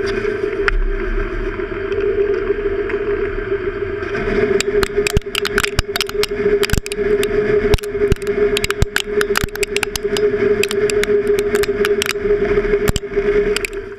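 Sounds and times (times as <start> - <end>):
sharp clicks of chips: 4.6 - 7.0, 7.8 - 12.2, 13.6 - 13.8.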